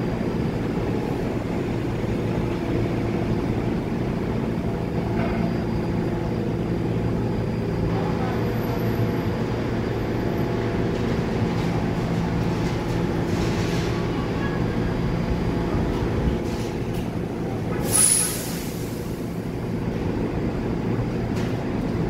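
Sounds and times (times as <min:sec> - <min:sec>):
train wheels and motors rumbling: 0:00.0 - 0:22.0
high wheel squeal: 0:17.8 - 0:18.6.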